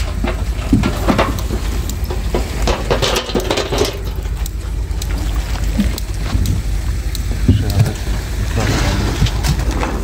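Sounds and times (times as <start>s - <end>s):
metal clanks and chain rattles: 0.0s - 5.3s
engine idling: 0.0s - 10.0s.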